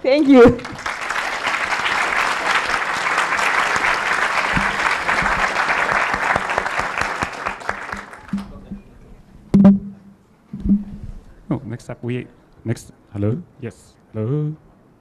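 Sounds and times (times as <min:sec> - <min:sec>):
audience applauding: 0:00.2 - 0:08.6.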